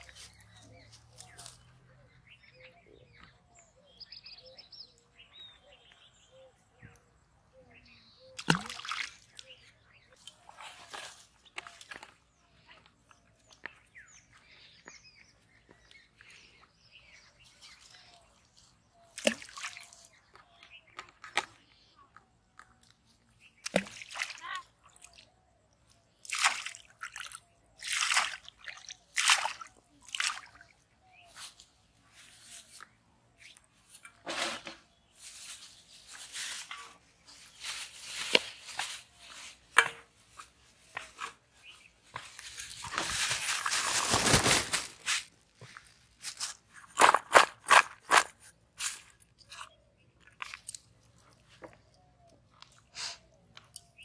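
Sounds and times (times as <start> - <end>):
hands squelching wet mud: 8.4 - 9.6, 17.7 - 20.6, 26.2 - 30.8, 46.8 - 54.0
plastic bag rustling: 42.5 - 45.4.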